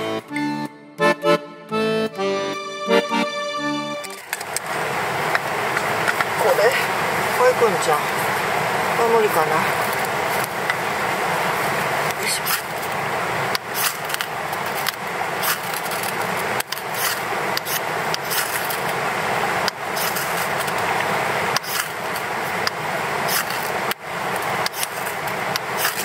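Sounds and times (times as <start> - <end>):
steady hiss: 2.9 - 26.0
knife scraping ferrocerium rod: 20.0 - 20.7, 21.6 - 22.0, 25.8 - 26.0.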